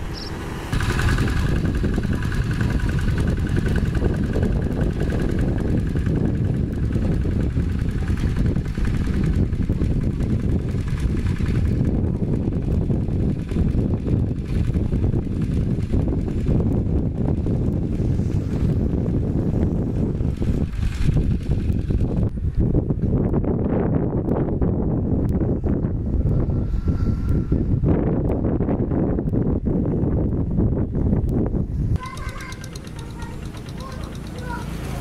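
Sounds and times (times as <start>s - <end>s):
diesel tractor engine running: 0.0s - 23.4s, 32.0s - 35.0s.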